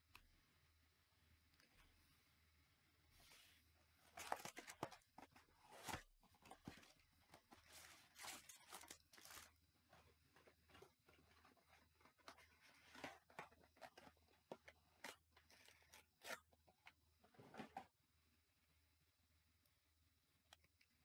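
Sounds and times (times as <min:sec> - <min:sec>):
cardboard tearing: 0:07.6 - 0:09.6.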